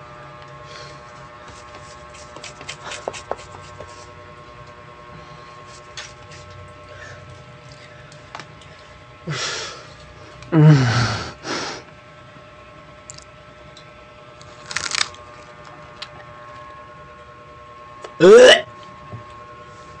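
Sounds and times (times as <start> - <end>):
lettuce crunching in a bite: 14.4 - 16.2.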